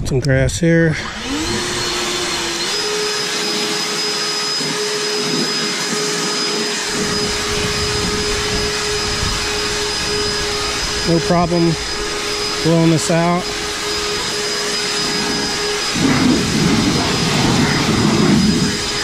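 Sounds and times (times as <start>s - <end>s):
leaf blower whining: 0.9s - 19.0s
rush of air: 6.8s - 19.0s.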